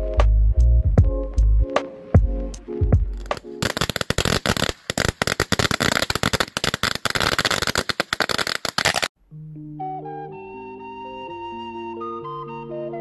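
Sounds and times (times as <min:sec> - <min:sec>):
music with a beat: 0:00.0 - 0:03.9
firecrackers cracking: 0:03.2 - 0:09.2.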